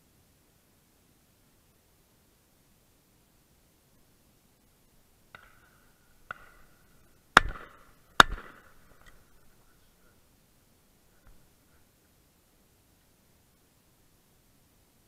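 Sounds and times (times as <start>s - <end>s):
shotgun shots: 5.3s - 9.1s.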